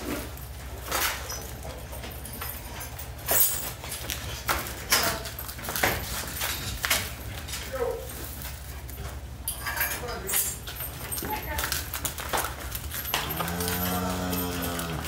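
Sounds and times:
hooves knocking on concrete: 0:10.6 - 0:15.0.

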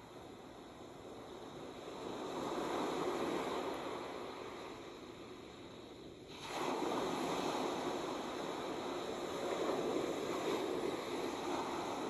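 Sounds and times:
ocean waves breaking on beach: 0:06.3 - 0:12.0.

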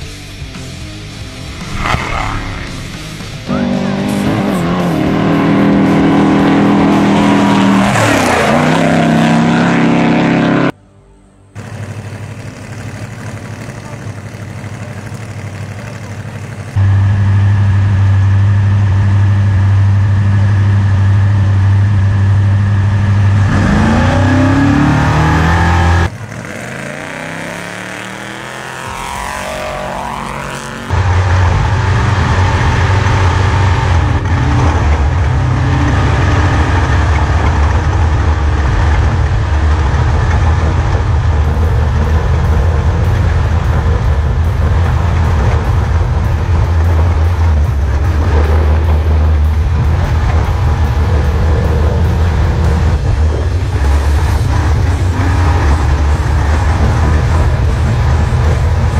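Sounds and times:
engine and drivetrain noise in cab: 0:00.0 - 0:58.9
truck engine idling and revving: 0:00.0 - 0:58.9
vehicle passing: 0:01.4 - 0:10.8.

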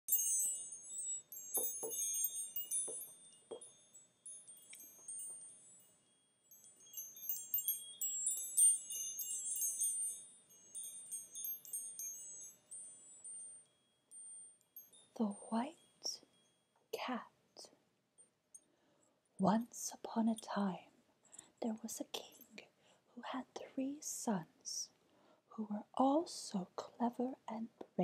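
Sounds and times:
wind chimes tinkling: 0:00.0 - 0:16.8.

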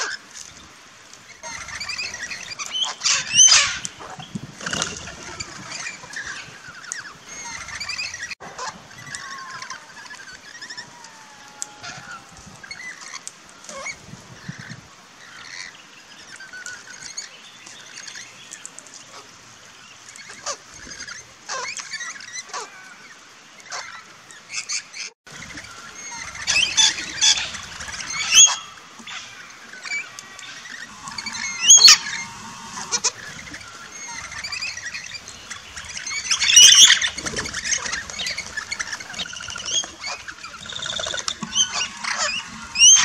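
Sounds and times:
parrots chattering and screeching: 0:01.4 - 0:06.5, 0:25.5 - 0:43.0.

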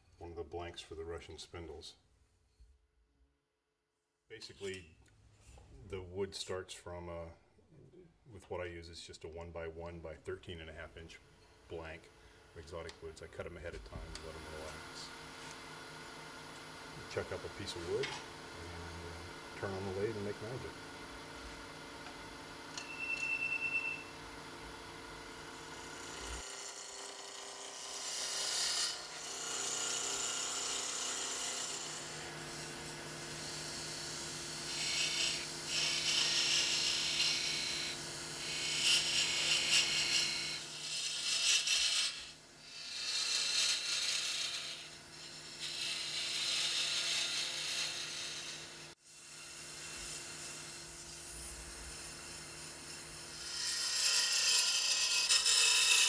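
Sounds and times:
turning tool scraping wood: 0:34.7 - 0:48.6, 0:49.7 - 0:56.0.

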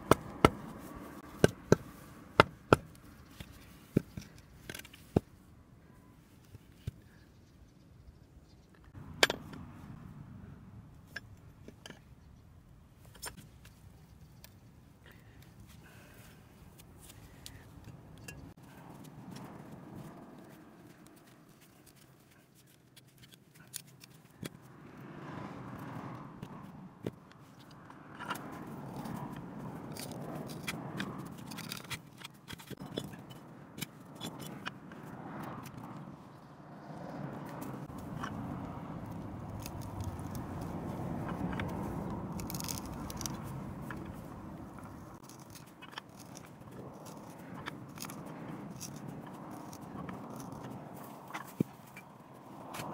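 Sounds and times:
sharp wood clicks and cracks: 0:27.3 - 0:34.8, 0:37.6 - 0:52.9
auger bit scraping wood: 0:37.8 - 0:52.9.

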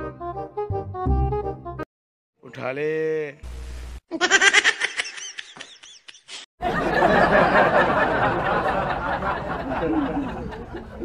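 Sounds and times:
high-pitched giggles: 0:04.1 - 0:06.4.

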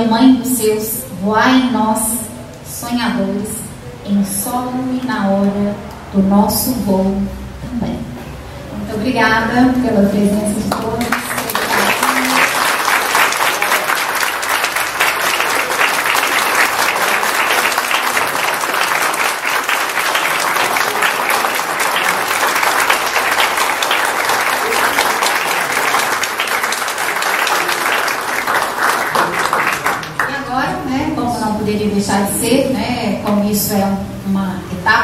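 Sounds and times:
audience applauding: 0:10.7 - 0:30.5.

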